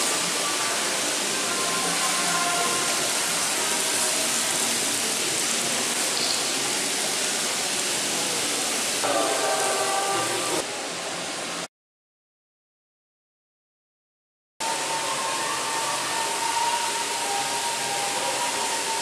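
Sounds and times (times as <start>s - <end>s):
faint music: 0.0s - 11.7s, 14.6s - 19.0s
shopping mall hiss: 0.0s - 11.7s, 14.6s - 19.0s
voices: 0.1s - 10.7s.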